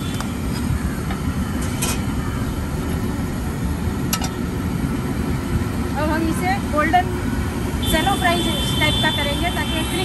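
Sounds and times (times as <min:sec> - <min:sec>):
low rumble: 0:01.2 - 0:06.0.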